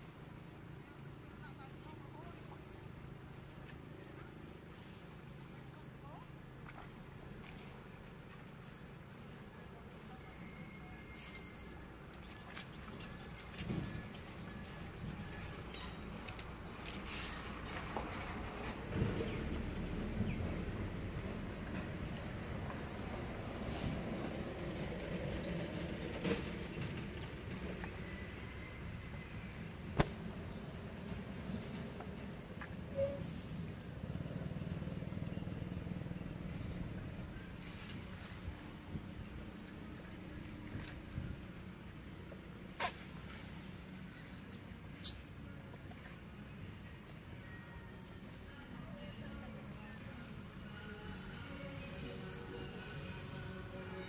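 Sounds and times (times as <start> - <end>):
high-pitched insect drone: 12.8 - 54.0
short squeak: 32.9 - 33.4.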